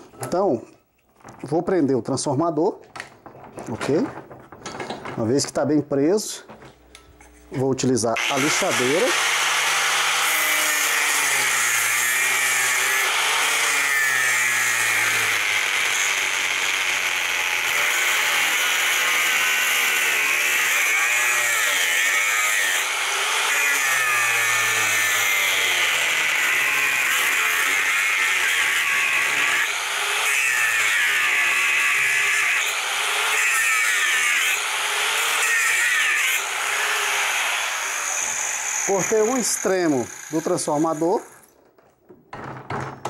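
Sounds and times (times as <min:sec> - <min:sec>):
angle grinder cutting metal: 0:08.2 - 0:41.5.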